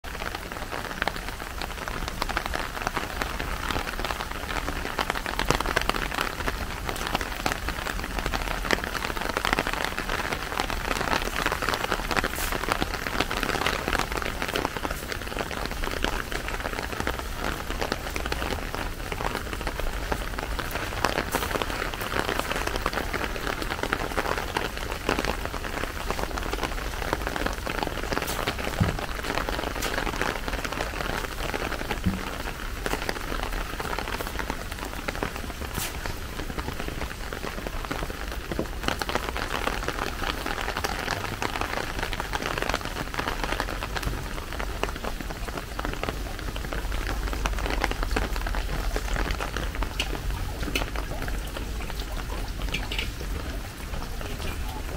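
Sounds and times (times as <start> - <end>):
steady rainfall: 0.0 - 54.9.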